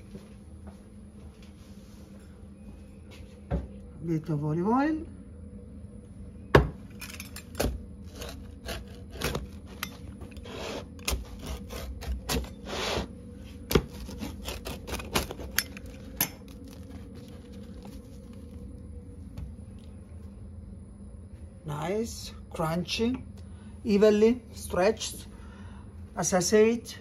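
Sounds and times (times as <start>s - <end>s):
pizza crust crunching under blade: 7.6s - 18.6s.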